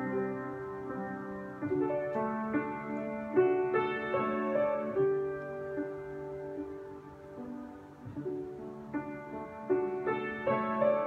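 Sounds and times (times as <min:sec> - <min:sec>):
slow gentle piano: 0:00.0 - 0:11.0.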